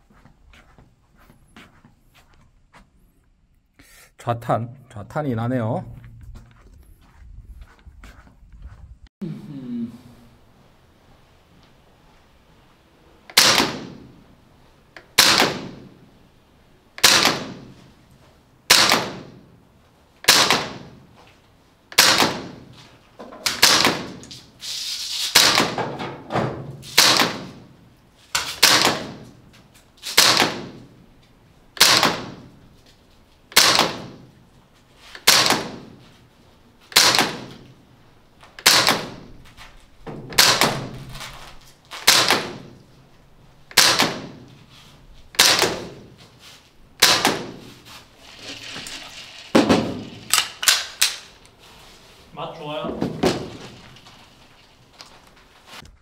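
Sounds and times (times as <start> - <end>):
airsoft rifle shots: 13.3 - 14.2, 15.1 - 16.1, 17.0 - 17.9, 18.7 - 19.5, 20.2 - 21.1, 21.9 - 22.7, 23.4 - 24.5, 25.3 - 27.7, 28.3 - 29.4, 30.0 - 31.0, 31.7 - 32.6, 33.5 - 34.3, 35.2 - 36.0, 36.9 - 37.8, 38.6 - 39.4, 40.3 - 42.8, 43.7 - 44.5, 45.3 - 46.2, 47.0 - 47.8, 49.4 - 51.4.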